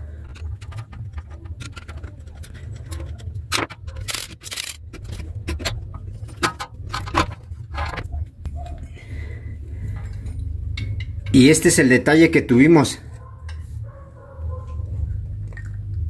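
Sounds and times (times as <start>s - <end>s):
metal clicks and scrapes: 0.0s - 8.2s
low hum: 0.0s - 11.3s.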